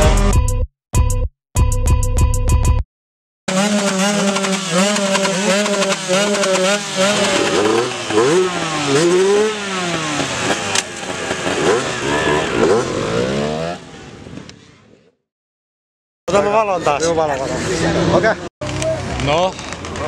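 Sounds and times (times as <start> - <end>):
moped engine revving: 3.5 - 14.5.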